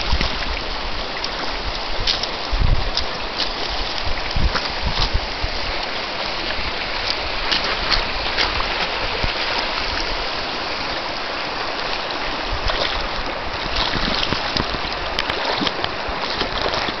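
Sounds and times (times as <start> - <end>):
wind rumble on microphone: 0.0 - 17.0
dog splashing through water: 12.6 - 17.0.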